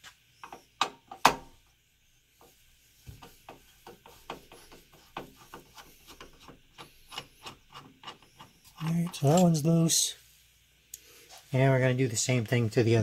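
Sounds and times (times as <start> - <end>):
screwdriver clicking and rubbing: 3.2 - 9.5.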